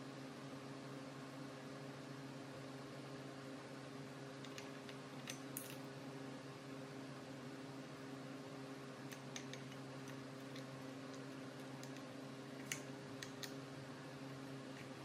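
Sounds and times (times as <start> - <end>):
low mechanical hum: 0.0 - 15.0
light clicks and ticks: 4.4 - 5.8, 9.1 - 13.6.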